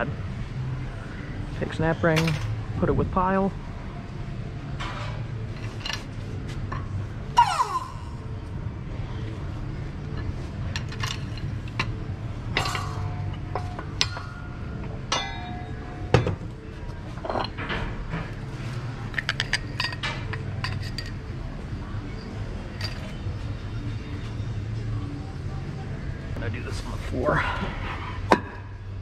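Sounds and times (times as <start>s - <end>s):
steady low hum: 0.0s - 29.0s
metal parts clinking and clattering: 4.8s - 6.9s, 10.1s - 18.4s, 19.1s - 21.2s, 22.7s - 23.2s
ringing metal clang: 11.8s - 16.5s.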